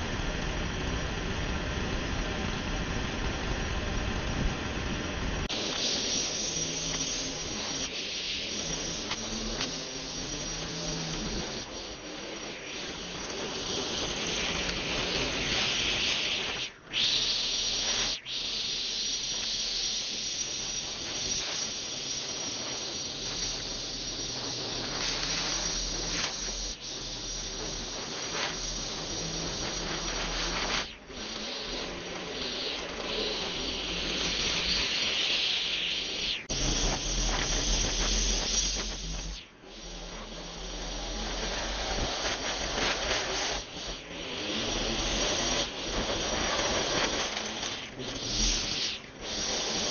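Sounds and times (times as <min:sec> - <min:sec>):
string trimmer cutting grass: 0:05.5 - 0:15.7.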